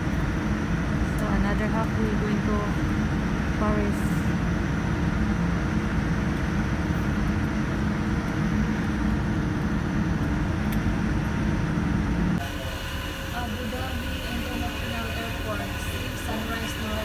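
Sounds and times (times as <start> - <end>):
jet airliner rumble inside cabin: 0.0 - 17.0.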